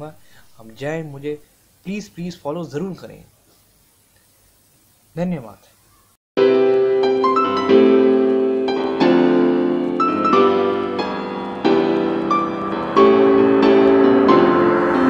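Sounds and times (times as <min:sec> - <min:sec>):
piano playing chords: 0:06.4 - 0:15.0.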